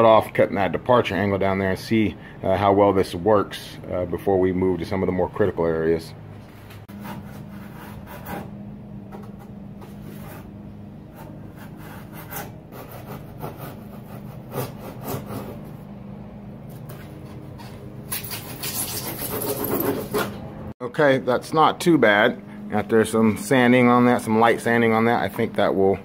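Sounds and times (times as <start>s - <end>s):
saw rasping through foam board: 6.9s - 8.6s, 9.2s - 15.8s, 18.1s - 20.4s.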